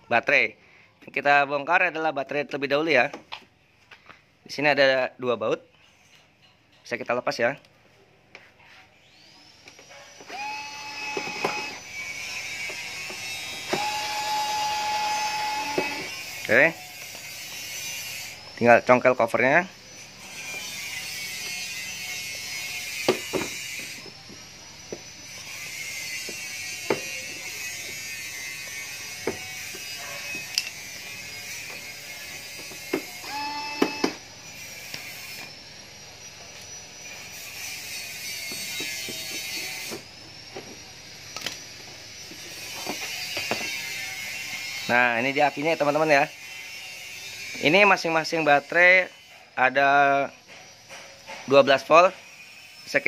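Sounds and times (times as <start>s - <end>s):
electric screwdriver motor whine: 9.0s - 18.7s, 19.8s - 45.0s.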